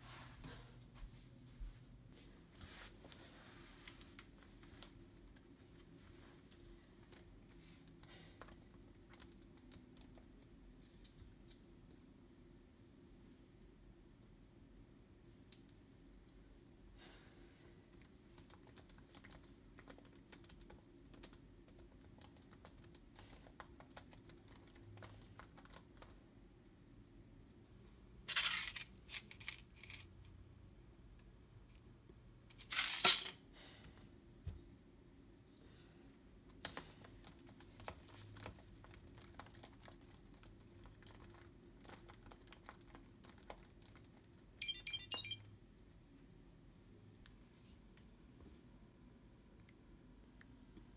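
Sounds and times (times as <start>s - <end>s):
typing on laptop keyboard: 7.0s - 10.6s, 17.9s - 26.2s, 36.5s - 45.4s
electronic chime of high beeps: 44.6s - 45.5s.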